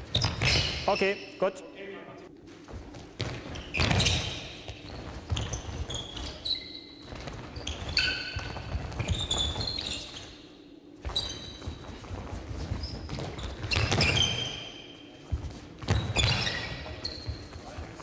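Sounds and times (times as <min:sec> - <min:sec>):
shoes squeaking on hall floor: 0:00.0 - 0:18.0
running feet thudding: 0:02.4 - 0:06.4.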